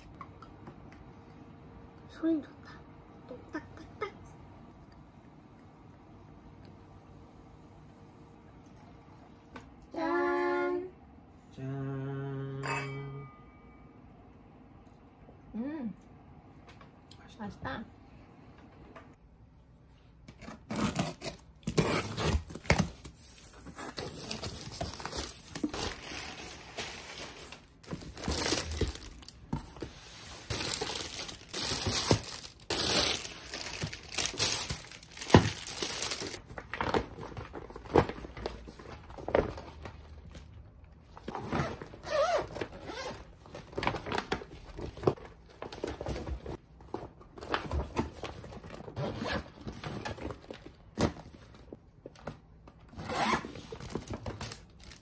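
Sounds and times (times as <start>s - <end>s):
plastic packaging crinkling: 23.9s - 29.5s, 30.4s - 39.6s, 53.6s - 55.0s.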